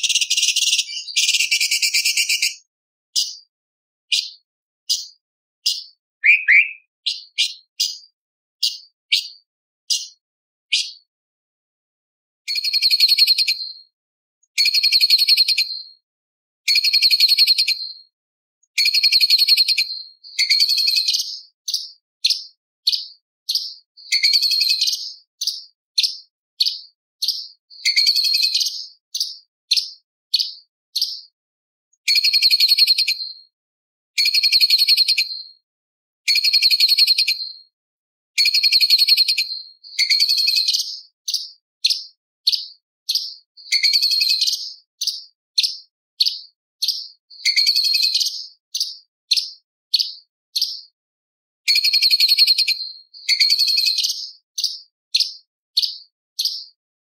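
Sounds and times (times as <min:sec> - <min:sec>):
bird scratchy chatter song: 0:00.0 - 0:02.6, 0:04.1 - 0:11.0, 0:18.8 - 0:31.3, 0:38.4 - 0:50.8, 0:51.7 - 0:56.7.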